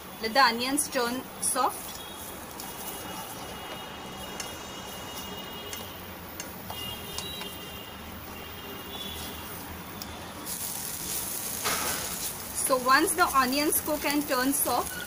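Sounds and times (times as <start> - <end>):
onions sizzling in a pan: 9.1 - 15.0.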